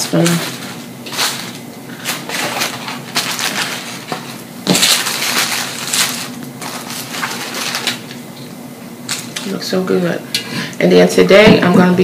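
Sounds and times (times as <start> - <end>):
paper wrappers rustling and crinkling: 0.0 - 8.2.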